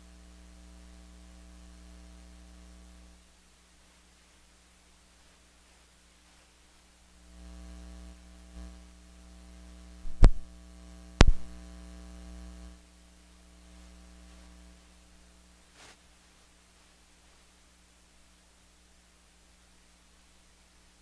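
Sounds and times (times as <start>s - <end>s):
electrical mains hum: 0.0s - 21.0s
sharp pops: 10.1s - 10.5s, 11.2s - 11.6s.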